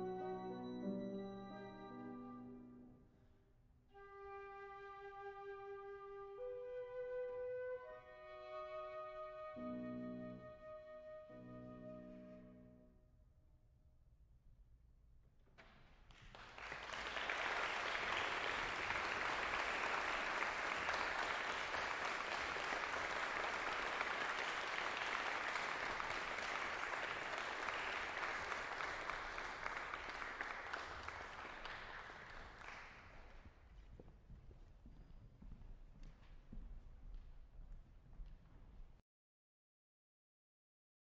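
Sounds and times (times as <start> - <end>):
audience applause: 16.1 - 33.5.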